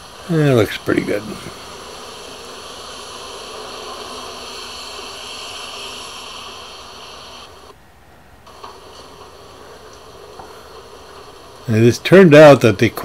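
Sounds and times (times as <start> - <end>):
garden hose spray hissing: 0.0 - 7.8, 8.5 - 13.0.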